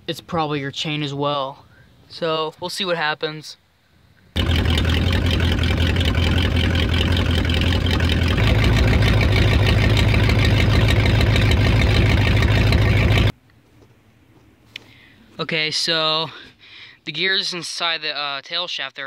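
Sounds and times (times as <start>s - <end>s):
engine running low note: 4.4s - 13.4s.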